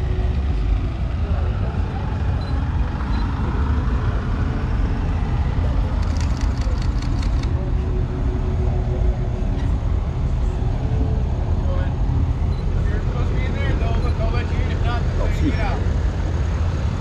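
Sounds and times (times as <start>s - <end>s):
truck engine droning: 0.0s - 17.0s
rapid sharp clicks: 6.0s - 7.5s.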